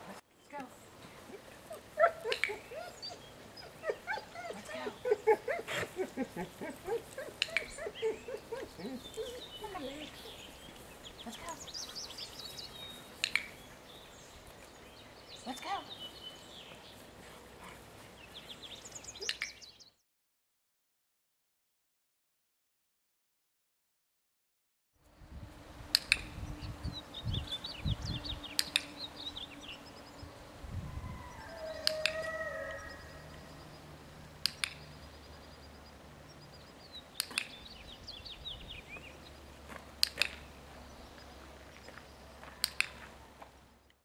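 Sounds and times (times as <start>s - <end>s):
birds chirping faintly: 0.3s - 20.0s, 25.0s - 44.0s
dog-training clicker clicking: 28.6s - 28.9s, 31.8s - 32.3s, 34.4s - 35.0s, 37.2s - 37.6s, 40.0s - 40.4s, 42.6s - 43.0s.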